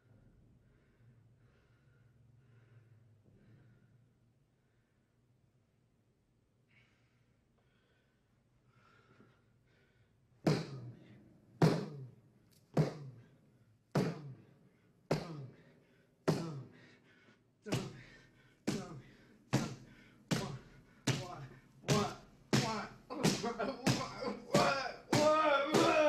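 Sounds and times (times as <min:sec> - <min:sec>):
fists punching concrete wall: 0:17.7 - 0:26.0.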